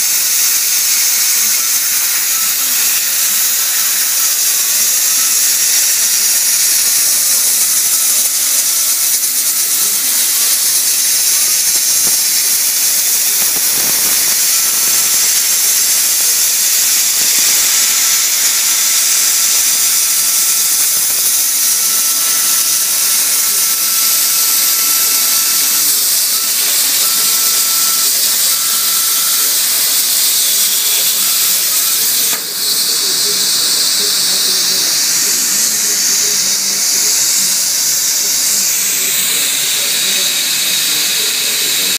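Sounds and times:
plasma torch hissing: 0.0s - 41.9s
faint high whine: 9.2s - 41.9s.

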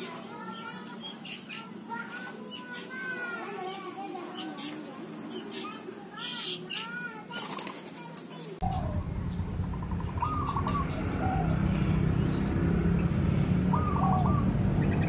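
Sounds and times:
dove cooing: 8.6s - 12.0s, 13.6s - 15.0s
low rumble: 8.6s - 15.0s.

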